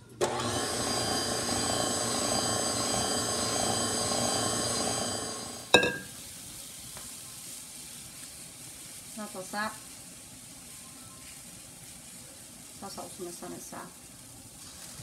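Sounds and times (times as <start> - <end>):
electric mixer whirring: 0.2 - 5.7
batter sizzling in a pan: 1.6 - 15.0.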